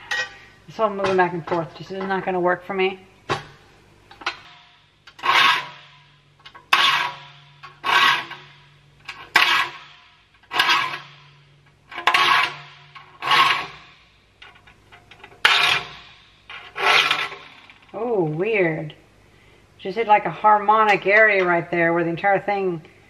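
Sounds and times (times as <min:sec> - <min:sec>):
saw plate humming: 0:04.2 - 0:14.0, 0:15.1 - 0:17.8
file rasping on saw teeth: 0:05.1 - 0:05.8, 0:06.7 - 0:08.5, 0:09.3 - 0:09.8, 0:10.5 - 0:11.1, 0:12.0 - 0:13.9.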